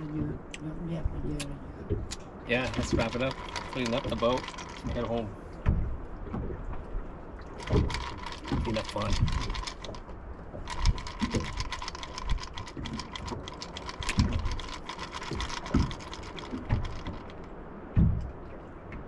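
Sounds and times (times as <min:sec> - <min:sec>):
rapid mechanical clicking: 0:02.5 - 0:05.2, 0:07.6 - 0:17.5
low thumps: 0:07.6 - 0:19.0.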